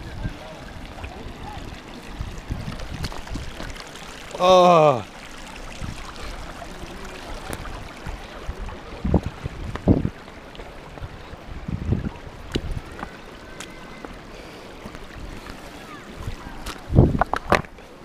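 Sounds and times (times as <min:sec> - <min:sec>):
wind noise on microphone: 0:00.0 - 0:03.8, 0:05.7 - 0:06.4, 0:07.3 - 0:13.2, 0:16.2 - 0:17.8
footsteps on stones in water: 0:02.6 - 0:04.0, 0:07.4 - 0:11.2, 0:12.4 - 0:17.8.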